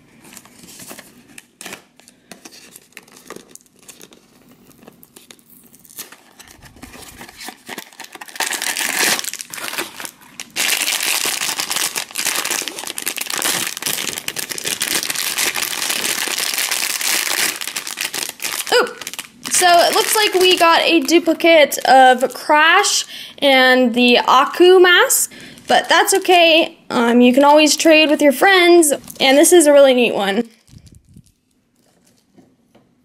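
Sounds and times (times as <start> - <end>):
foil bag crinkling: 0.1 - 22.4, 25.3 - 26.4, 30.5 - 32.4.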